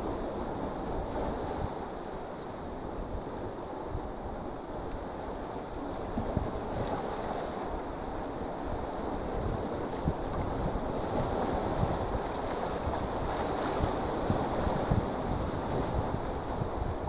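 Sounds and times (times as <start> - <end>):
sea surf breaking over rocks: 0.0 - 17.0
wind buffeting microphone: 8.8 - 17.0.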